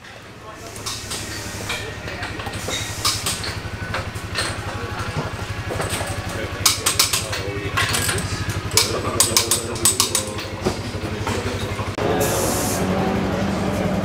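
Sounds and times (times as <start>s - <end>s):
engine idling: 0.0s - 14.0s
sharp clicks and knocks: 0.8s - 11.7s.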